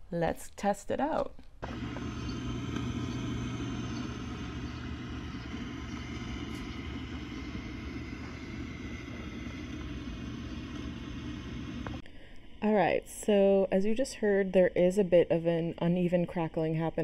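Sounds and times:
amplifier crackling and hiss: 1.6 - 12.0
amplifier mains hum: 1.6 - 13.6.

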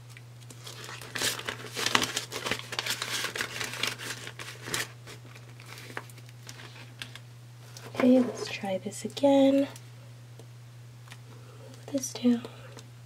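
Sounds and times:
plastic pouch crinkling: 0.4 - 7.2.

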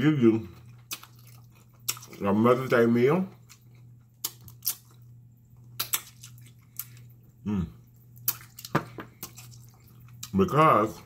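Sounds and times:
wet mouth eating sounds: 0.6 - 2.7, 3.3 - 10.4
person humming: 7.4 - 7.8.

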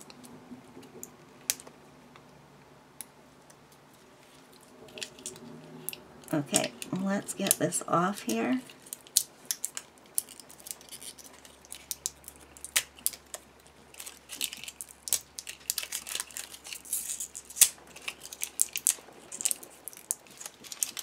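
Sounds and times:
plastic wrapper crinkling and tearing: 4.3 - 7.6, 8.2 - 21.0.

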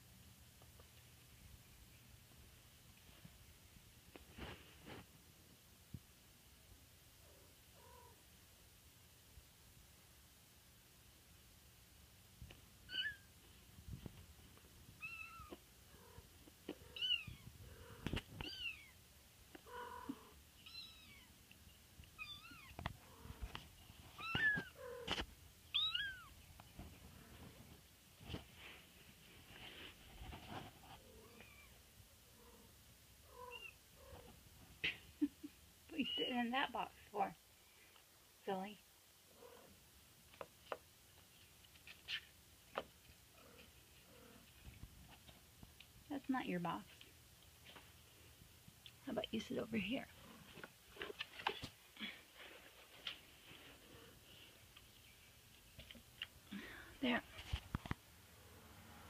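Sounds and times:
soft rustle: 0.6 - 5.3, 12.3 - 32.7, 39.4 - 58.2
kittens mewing: 19.6 - 21.3, 24.2 - 25.2.

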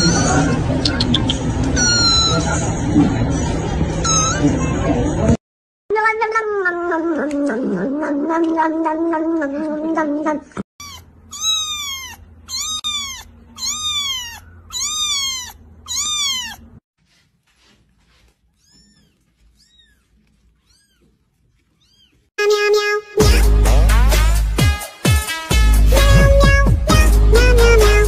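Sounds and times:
kitten meowing: 1.8 - 2.4, 10.8 - 16.7, 18.6 - 22.2
music with a beat: 23.2 - 28.0.

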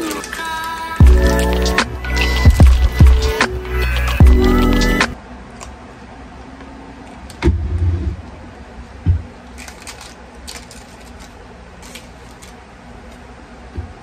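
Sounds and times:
light crinkling and clicking: 0.0 - 1.0, 9.5 - 13.3.

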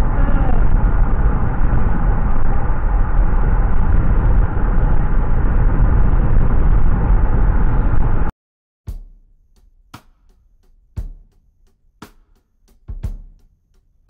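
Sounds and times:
car driving rumble: 0.0 - 8.3.

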